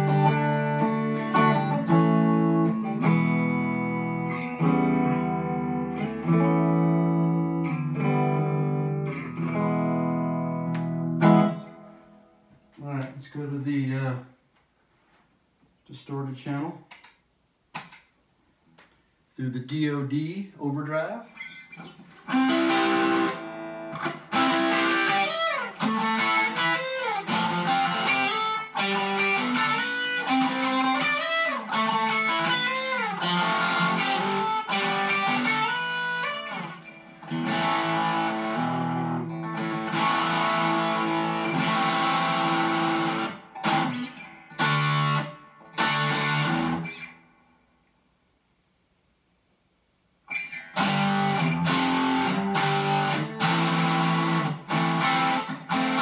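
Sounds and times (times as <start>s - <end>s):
distorted electric guitar: 0.0s - 12.2s, 21.3s - 47.5s, 50.3s - 56.0s.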